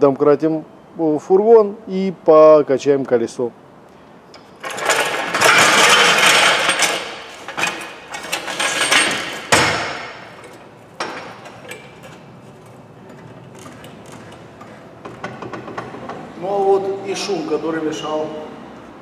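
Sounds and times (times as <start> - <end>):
floor jack metal clank: 4.6 - 16.2.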